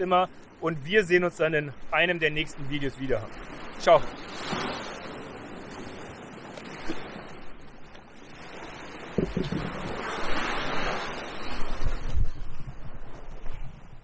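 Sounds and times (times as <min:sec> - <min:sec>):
surf washing against rocks: 0:00.0 - 0:07.5, 0:08.1 - 0:13.6
wind buffeting microphone: 0:08.4 - 0:14.0.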